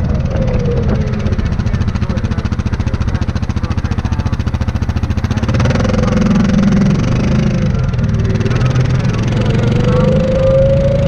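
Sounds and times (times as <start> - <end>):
atv engine running: 0.0 - 11.0.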